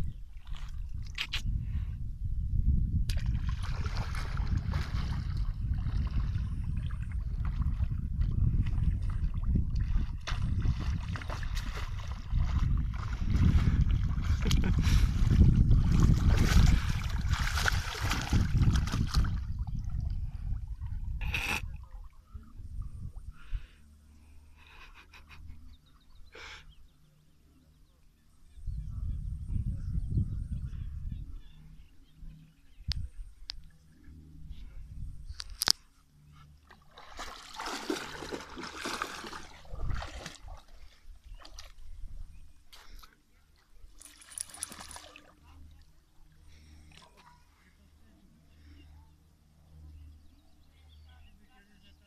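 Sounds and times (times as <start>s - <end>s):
wind buffeting microphone: 0.0s - 23.7s, 28.6s - 33.6s, 37.7s - 42.5s
dog splashing through water: 9.8s - 14.7s, 15.8s - 19.5s, 36.7s - 41.8s, 44.0s - 45.4s.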